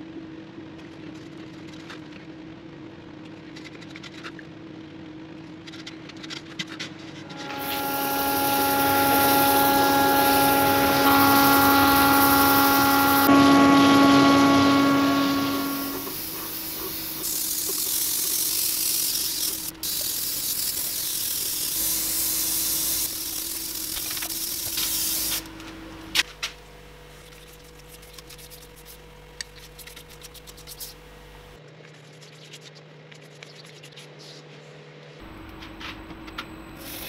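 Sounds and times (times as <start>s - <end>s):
airbrush spraying hiss: 7.3s - 25.5s.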